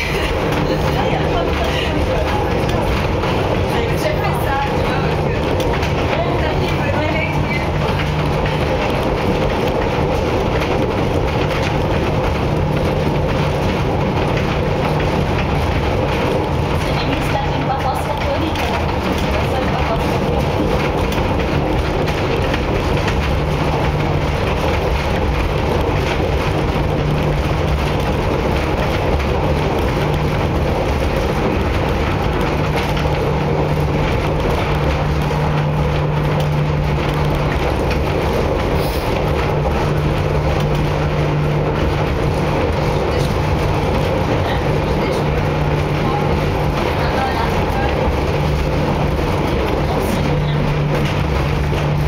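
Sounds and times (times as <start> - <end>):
funicular car rumbling on rails: 0.0 - 52.0
low hum: 0.0 - 52.0.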